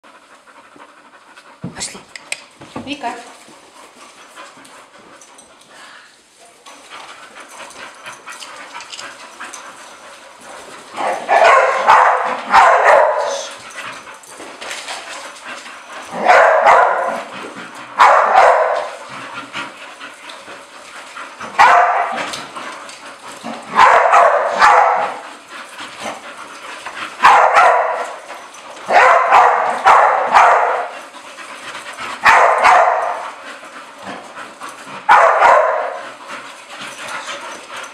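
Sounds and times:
dogs scuffling: 0.5s - 37.9s
dogs barking: 11.0s - 13.5s, 16.1s - 17.3s, 18.0s - 19.0s, 21.5s - 22.3s, 23.5s - 25.2s, 27.2s - 31.0s, 32.2s - 33.3s, 35.0s - 36.0s.

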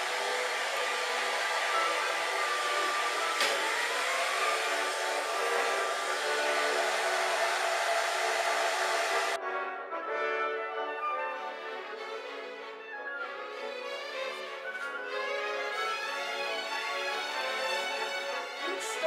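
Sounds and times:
hair dryer blowing: 0.0s - 9.4s, 15.8s - 19.0s.

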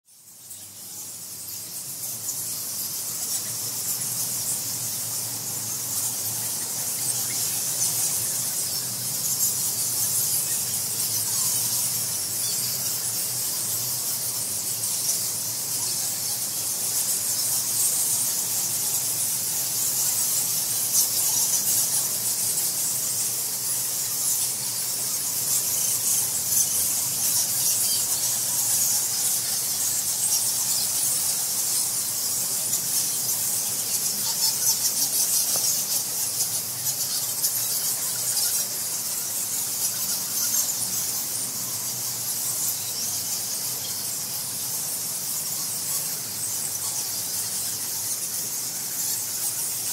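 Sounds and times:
bats squeaking and chattering: 0.1s - 49.9s.

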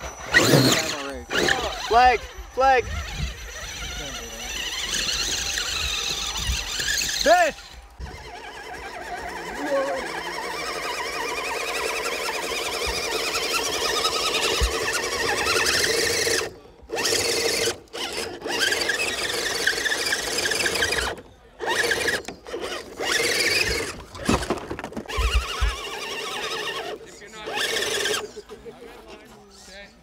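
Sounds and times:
electric motor whining: 0.0s - 29.2s.

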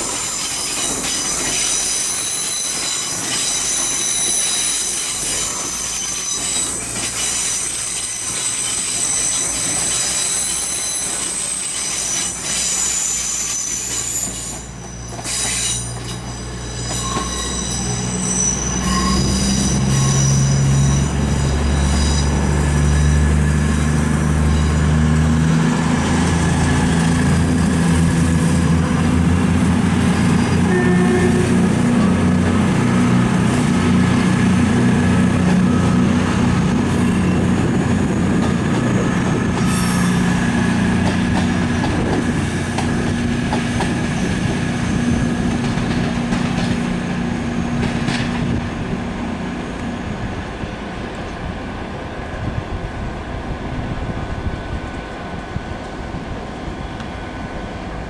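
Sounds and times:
wheel or brake squeal: 0.0s - 25.2s
diesel train engines running: 0.0s - 58.0s.

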